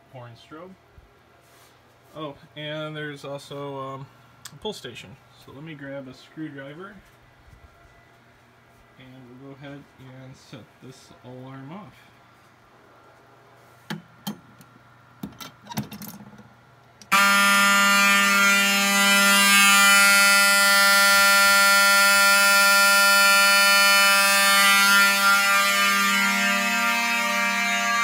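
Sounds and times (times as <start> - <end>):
fire alarm horns steady tone: 17.0 - 28.0.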